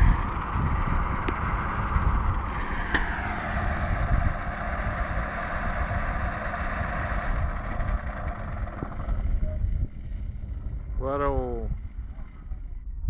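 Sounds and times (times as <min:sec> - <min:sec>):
diesel engine running: 0:00.0 - 0:13.0
sharp click: 0:02.9 - 0:03.1.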